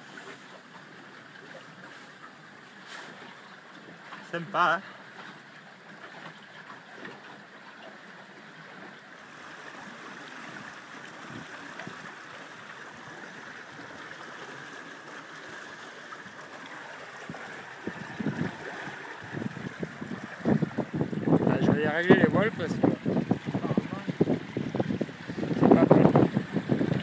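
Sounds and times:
water rushing past a boat: 0.0s - 27.0s.

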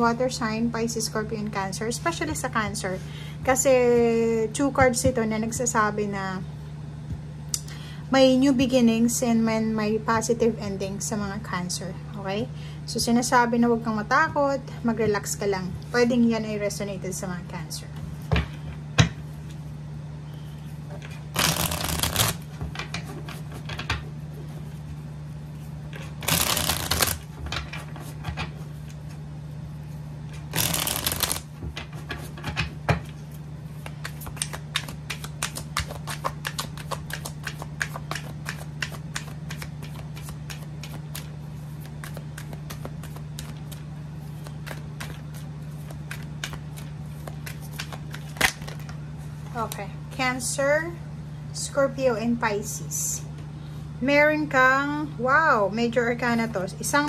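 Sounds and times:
cards shuffling: 21.0s - 22.5s, 26.0s - 28.2s, 30.3s - 31.6s, 33.7s - 49.0s.

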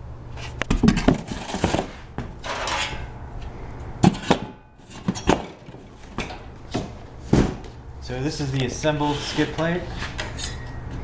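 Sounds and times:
sheet metal clanking: 2.4s - 3.2s.

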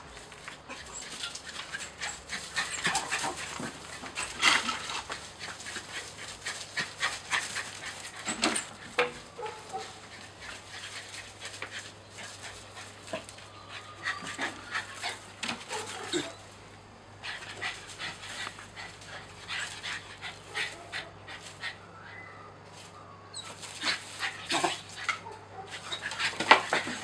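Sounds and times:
rustles and clicks of dog moving: 0.0s - 16.6s, 22.6s - 27.0s
small dog panting: 0.4s - 16.3s, 17.2s - 21.8s, 23.4s - 27.0s.

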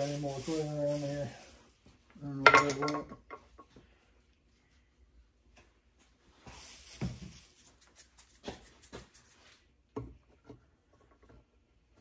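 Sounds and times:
hands rubbing clay: 6.5s - 9.9s.

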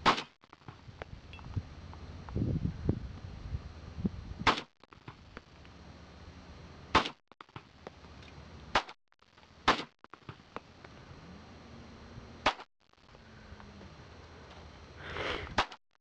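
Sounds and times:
handgun shots: 7.0s - 7.2s.

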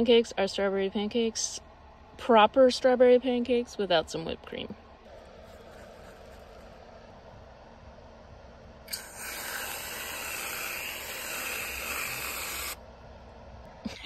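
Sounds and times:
aerosol can spraying hiss: 8.9s - 12.8s.

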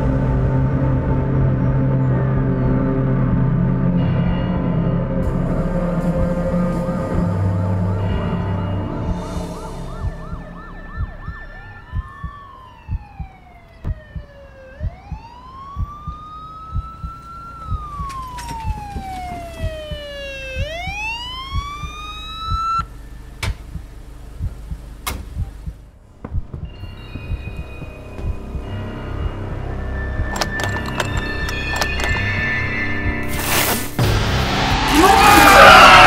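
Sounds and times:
low thumping pulse: 5.2s - 30.4s
emergency vehicle siren wailing: 7.1s - 25.0s, 34.6s - 36.0s.

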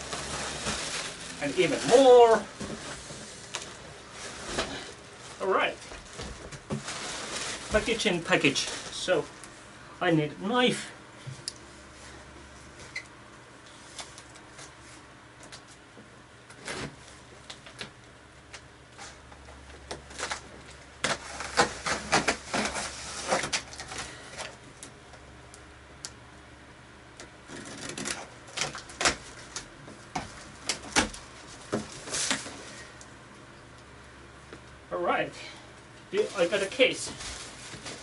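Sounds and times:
knife cutting packing tape: 21.0s - 24.0s.

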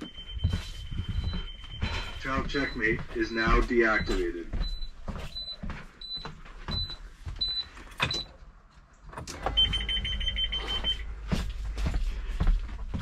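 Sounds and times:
steady buzzer tone: 9.4s - 11.0s
short high beeps: 9.5s - 11.0s.

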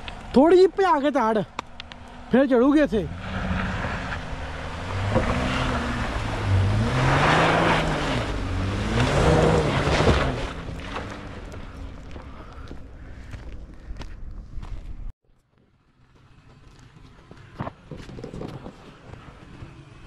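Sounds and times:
engine revving under load: 2.0s - 12.1s
tyres spinning in dirt: 3.1s - 12.8s.

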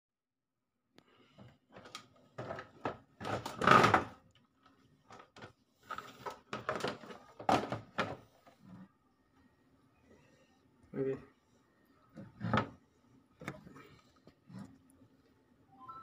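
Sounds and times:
plastic knocks and rattles: 1.7s - 4.2s, 5.1s - 8.3s.

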